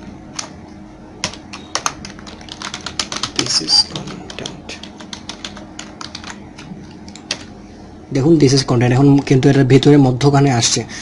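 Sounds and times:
typing on a keyboard: 0:01.2 - 0:07.5.

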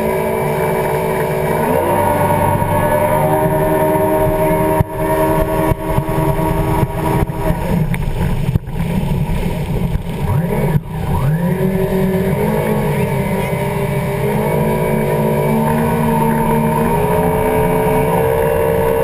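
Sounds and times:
jet ski engine drone: 0:00.0 - 0:19.0
rushing water: 0:00.0 - 0:19.0
wind: 0:00.0 - 0:19.0.

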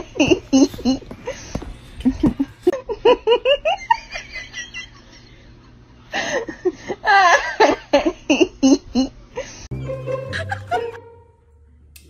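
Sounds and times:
person giggling: 0:00.0 - 0:05.2, 0:06.2 - 0:09.6, 0:10.2 - 0:11.0.

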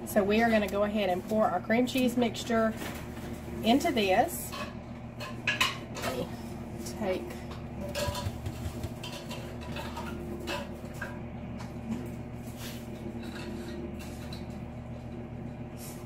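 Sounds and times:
steady low hum: 0:00.0 - 0:16.0
utensil knocking on mixing bowl: 0:07.9 - 0:09.2.

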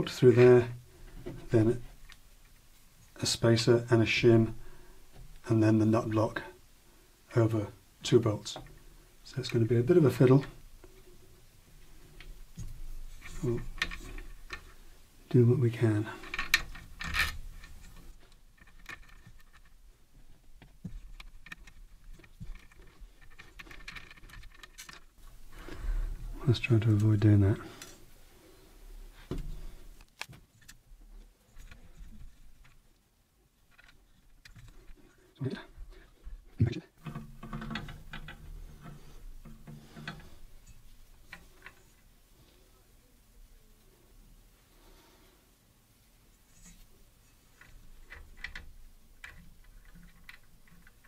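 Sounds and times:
rustle: 0:00.0 - 0:51.0
small metal parts clicking: 0:16.1 - 0:19.8, 0:21.1 - 0:25.2, 0:46.5 - 0:51.0.

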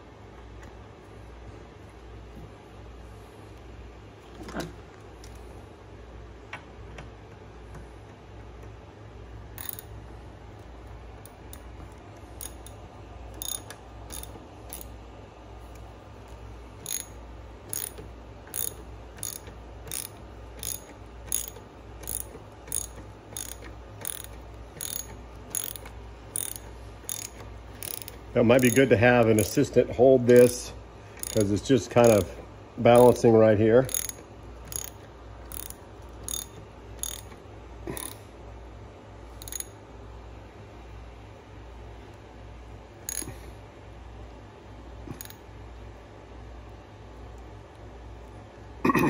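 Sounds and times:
steady low hum: 0:00.0 - 0:49.0
socket ratchet clicking: 0:09.6 - 0:10.0, 0:11.2 - 0:15.0, 0:16.8 - 0:29.5, 0:30.3 - 0:30.6, 0:31.2 - 0:32.3, 0:32.9 - 0:33.2, 0:33.9 - 0:38.2, 0:39.4 - 0:39.8, 0:43.0 - 0:43.4, 0:45.1 - 0:45.4.

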